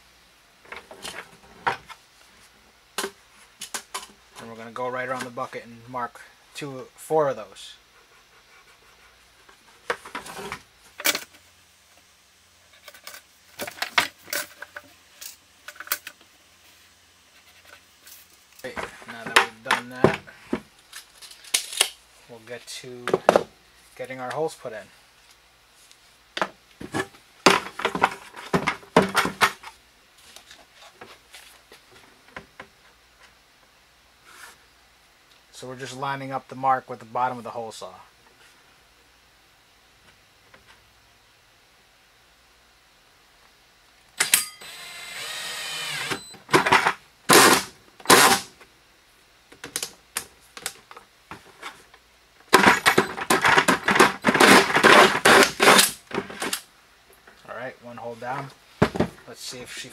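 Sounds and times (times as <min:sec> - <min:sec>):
drill with hole saw cutting plastic: 0:44.2 - 0:46.4
plastic bucket knocking and thumping: 0:58.8 - 0:59.2.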